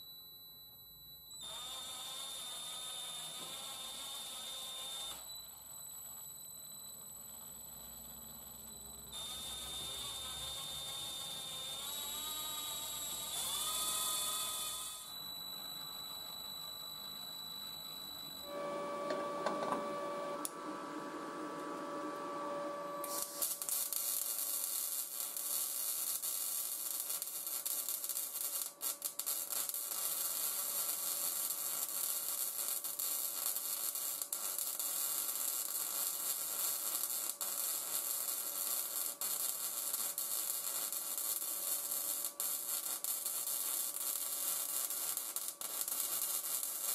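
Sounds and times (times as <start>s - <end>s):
welding arc crackling hiss: 1.6s - 5.1s, 9.2s - 15.0s, 23.0s - 46.9s
cordless drill whining: 9.2s - 15.2s.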